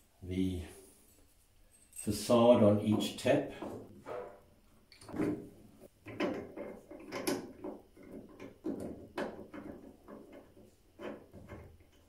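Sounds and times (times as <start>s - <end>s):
tap handle clicks and knocks: 6.0s - 12.0s.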